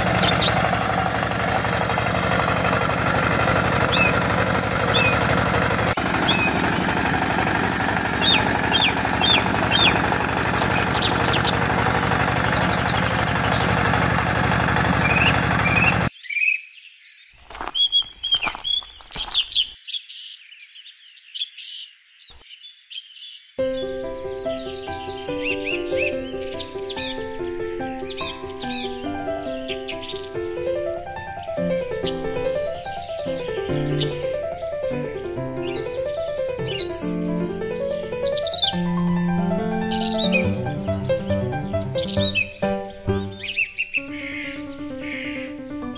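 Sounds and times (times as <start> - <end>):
tractor engine running: 0.0 - 16.1, 25.9 - 44.4
birds chirping: 0.0 - 45.9.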